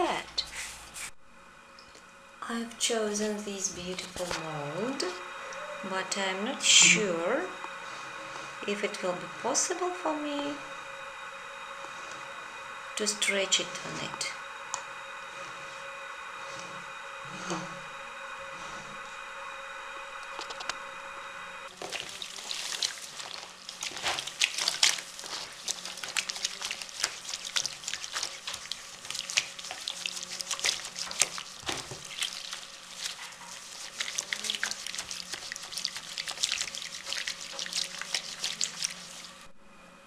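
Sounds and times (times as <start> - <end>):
wet splashes and squelches: 21.7 - 39.5.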